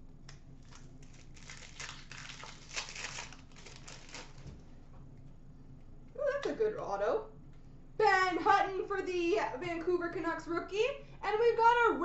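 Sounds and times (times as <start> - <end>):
foil wrapper crinkling: 0.6 - 4.5.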